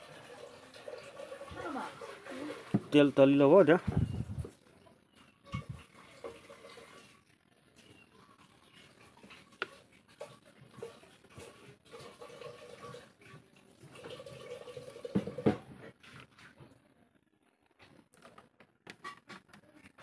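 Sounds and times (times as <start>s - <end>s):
oil trickling into a metal pan: 0.0s - 3.5s, 5.2s - 15.6s.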